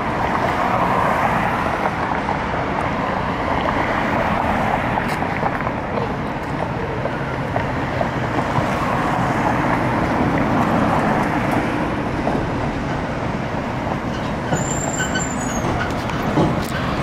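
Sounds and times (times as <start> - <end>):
bus arriving: 0.0 - 17.0
cars passing: 0.0 - 17.0
brief high squeal: 14.1 - 15.9.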